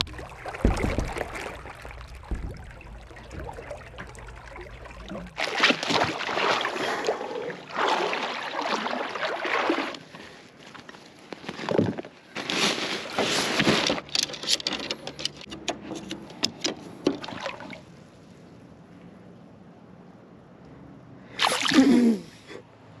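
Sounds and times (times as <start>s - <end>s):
low rumble: 0.0s - 5.4s
water splashing against boat hull: 0.0s - 18.0s
clothing and gear rustling: 10.1s - 14.9s.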